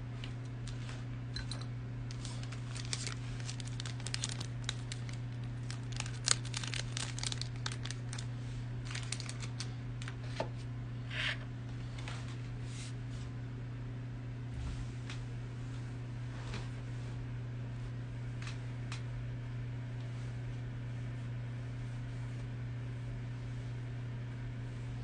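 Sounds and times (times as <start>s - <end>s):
steady low hum: 0.0s - 25.0s
light clicks and crinkles: 0.2s - 10.2s.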